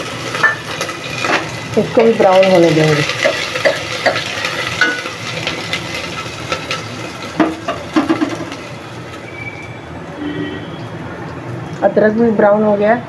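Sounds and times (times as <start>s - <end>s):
spices sizzling in hot oil: 0.0s - 10.0s.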